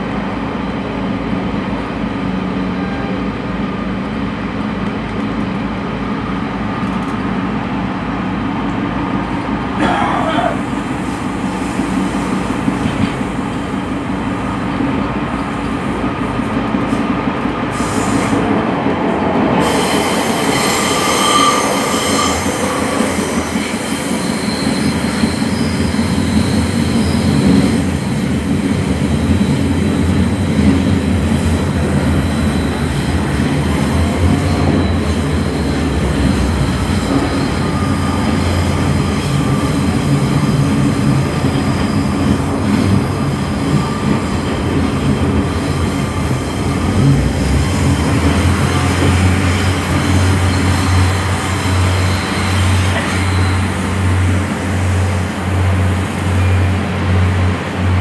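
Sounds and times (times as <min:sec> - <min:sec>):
train engine and wheels rumbling: 0:00.0 - 0:58.0
high thin wheel squeal: 0:19.6 - 0:27.7, 0:34.2 - 0:40.6, 0:47.9 - 0:54.2.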